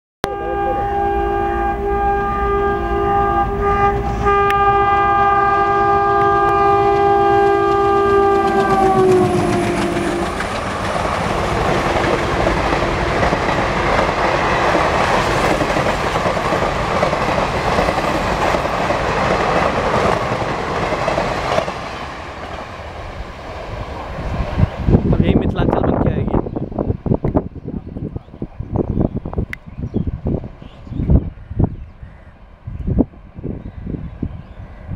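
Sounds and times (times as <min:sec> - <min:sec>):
locomotive air horn blast: 0:00.2 - 0:10.5
train wheels clattering over rails: 0:06.2 - 0:24.8.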